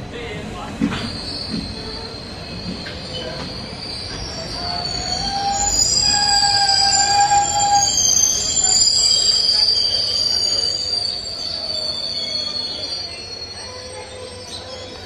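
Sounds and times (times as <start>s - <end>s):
train rumble: 0.0s - 15.0s
train wheels squealing on rails: 0.6s - 15.0s.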